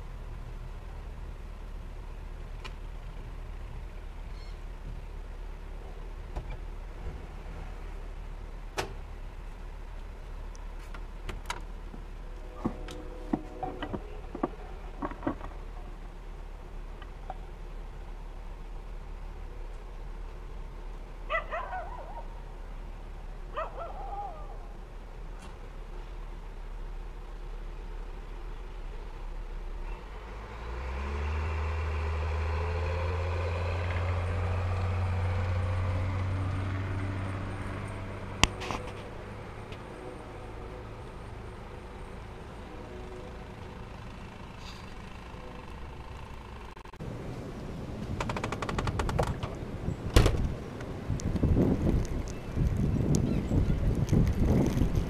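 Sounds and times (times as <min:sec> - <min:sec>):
heavy vehicle engine rumbling: 0:00.0 - 0:55.0
blizzard wind rumbling: 0:46.5 - 0:55.0.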